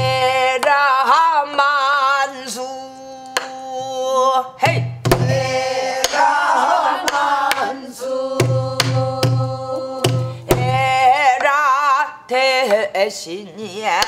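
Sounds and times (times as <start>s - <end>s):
woman singing with vibrato: 5.3s - 14.0s.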